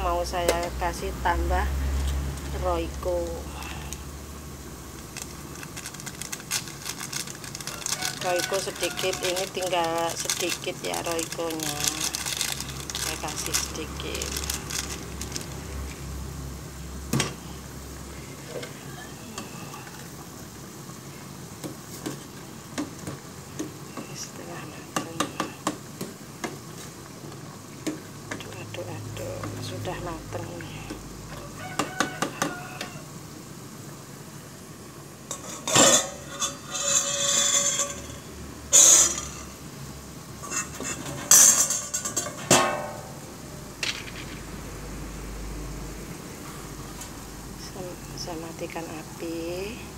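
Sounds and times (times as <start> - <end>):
soup bubbling in pot: 1.8 - 43.4
metal spoon clanking on saucepan: 35.3 - 39.5, 40.4 - 43.1
spoon scraping saucepan: 35.3 - 39.6, 40.4 - 42.4.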